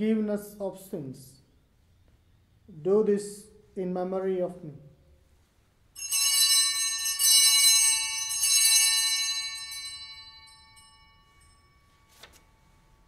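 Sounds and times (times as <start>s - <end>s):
altar bells ringing: 6.0s - 13.0s.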